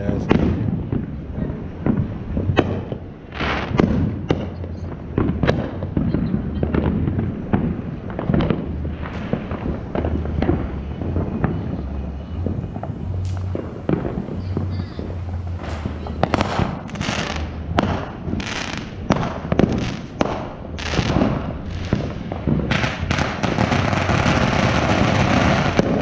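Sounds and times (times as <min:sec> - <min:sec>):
fireworks bangs and pops: 0:00.0 - 0:26.0
low hum: 0:04.1 - 0:26.0.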